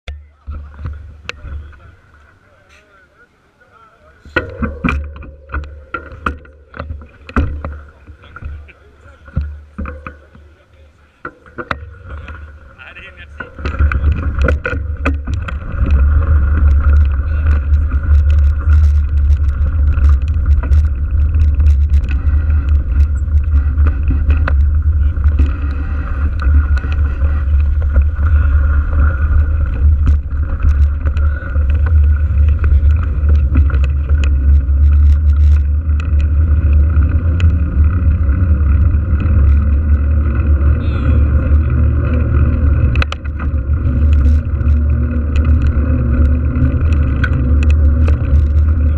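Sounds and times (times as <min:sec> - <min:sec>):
tyre and road noise: 0:00.0 - 0:48.9
bike clicks and rattles: 0:00.1 - 0:02.9, 0:04.1 - 0:48.9
wind buffeting microphone: 0:11.8 - 0:48.9.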